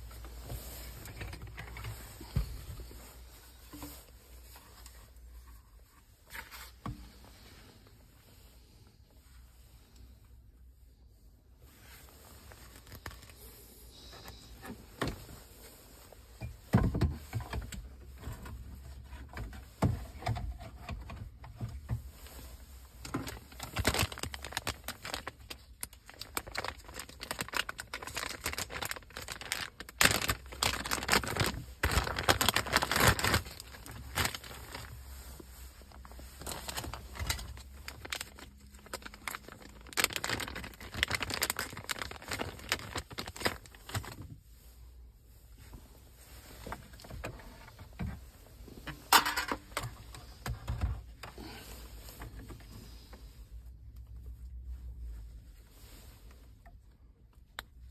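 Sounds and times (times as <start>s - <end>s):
plastic packaging crinkling: 12.4s - 13.6s, 23.0s - 44.3s.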